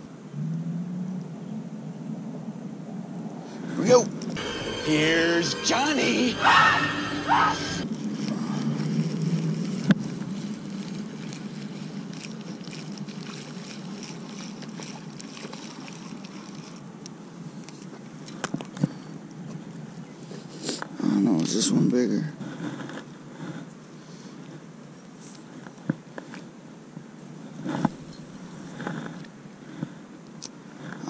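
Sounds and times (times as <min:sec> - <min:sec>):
man's voice: 0:03.8 - 0:07.8
water and wind noise: 0:07.9 - 0:18.7.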